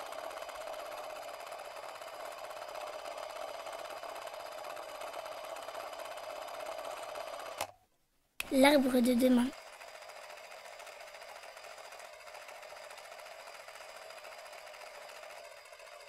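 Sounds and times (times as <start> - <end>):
machine whirring: 8.4 - 16.0.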